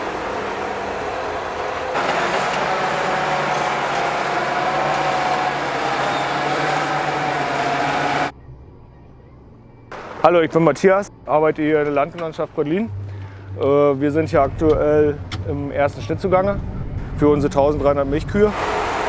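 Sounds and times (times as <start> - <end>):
tractor engine under load: 0.0 - 8.3.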